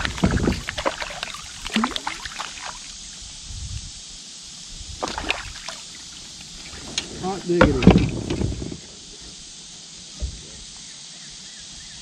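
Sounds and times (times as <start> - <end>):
fish splashing in water: 0.0 - 3.0, 5.0 - 9.2.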